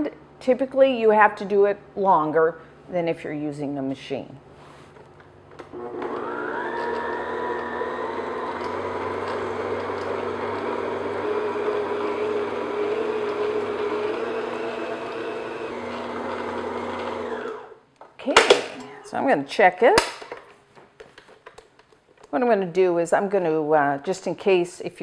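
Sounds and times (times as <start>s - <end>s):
stand mixer motor whirring: 5.7s - 17.8s.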